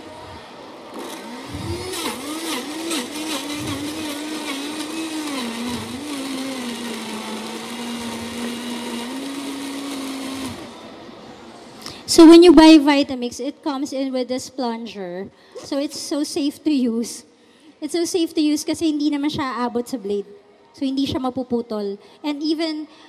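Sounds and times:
blender motor: 0.0 - 11.2.

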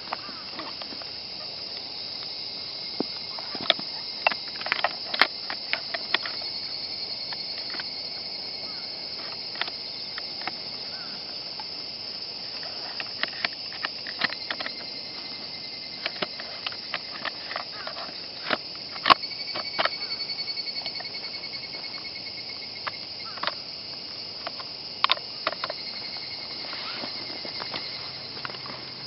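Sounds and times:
insects chirring: 0.0 - 29.0
rifle parts clicking and knocking: 3.6 - 6.4, 13.0 - 14.9, 16.0 - 20.0.

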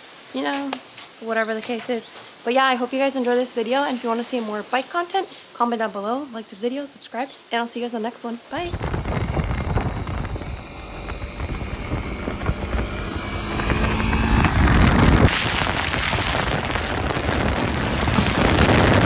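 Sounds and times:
motorcycle engine passing: 8.6 - 15.4
wind and road rush: 8.6 - 19.0.

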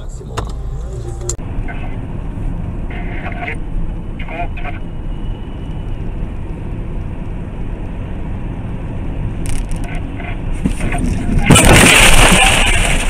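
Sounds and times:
car driving on highway: 0.0 - 11.6
loud crash: 10.8 - 13.0.

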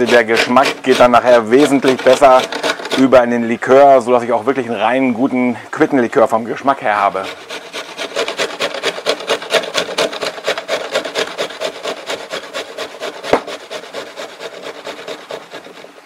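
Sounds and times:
quince scraping on grater: 0.0 - 3.3, 6.9 - 16.0
sharp knock: 13.3 - 13.6.

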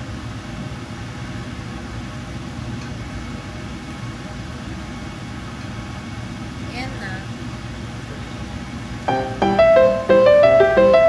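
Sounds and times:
kitchen background hum and hiss: 0.0 - 11.0.

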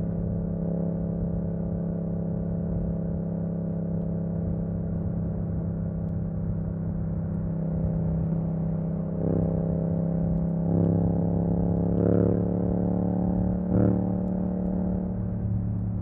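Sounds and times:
motorcycle engine revving: 7.9 - 16.0.

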